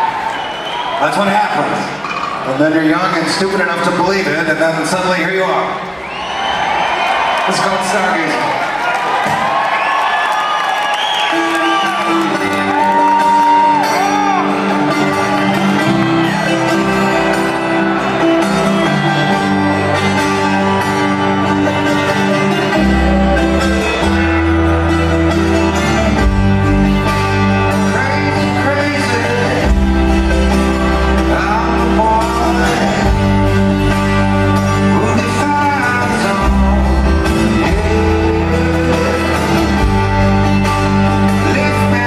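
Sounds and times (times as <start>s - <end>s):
audience whoops: 0.0s - 1.2s, 5.9s - 18.4s
electric guitar chords: 11.3s - 42.0s
heavy bass line: 18.6s - 42.0s.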